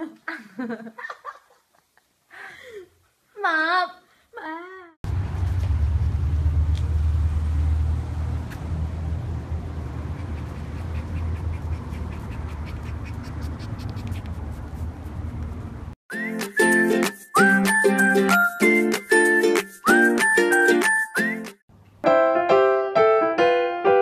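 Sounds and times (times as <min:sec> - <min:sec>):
low rumble: 0:05.1 - 0:10.8
puppy paws ticking on paving: 0:10.1 - 0:15.7.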